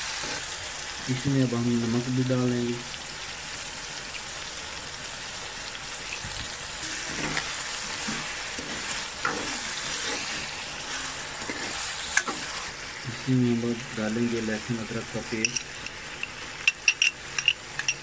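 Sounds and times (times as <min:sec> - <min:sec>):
chicken sizzling in hot oil: 0:00.0 - 0:18.0
metal ladle scraping and stirring: 0:06.8 - 0:12.7.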